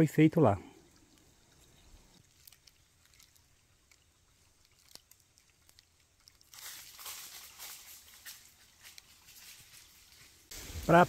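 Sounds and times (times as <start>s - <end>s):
footsteps crunching on leaves: 6.2s - 11.0s.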